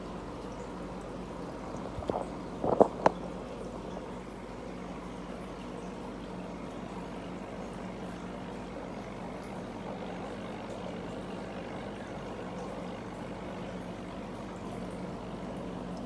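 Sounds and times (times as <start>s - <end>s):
aquarium filter bubbling: 0.0s - 16.0s
low steady hum: 0.0s - 16.0s
bubbles breaking ticks: 1.6s - 4.1s.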